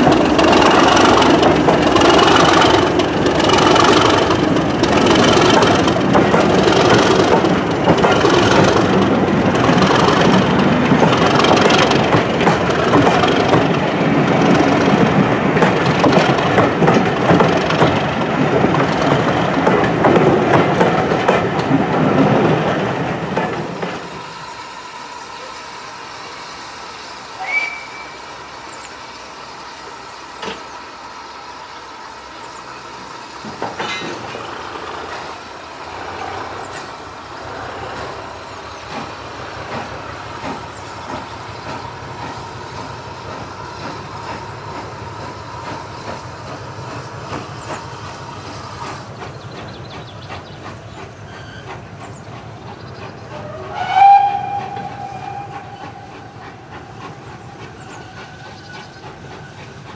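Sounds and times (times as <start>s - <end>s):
steam train rumbling: 0.0s - 59.9s
train whistle: 27.3s - 28.3s, 53.3s - 58.9s.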